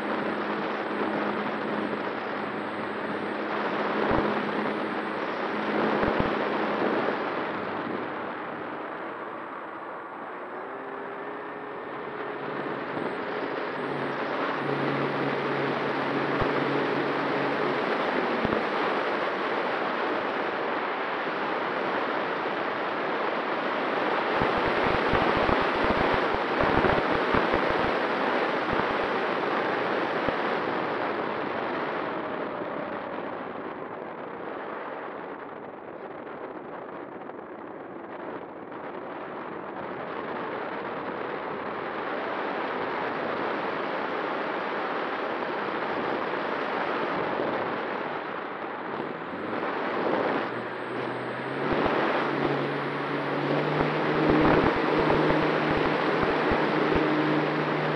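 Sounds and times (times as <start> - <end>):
airflow rushing: 0.0 - 20.6, 47.1 - 57.9
electric motor whine: 0.0 - 21.3, 47.2 - 57.9
wind buffets: 0.0 - 57.9.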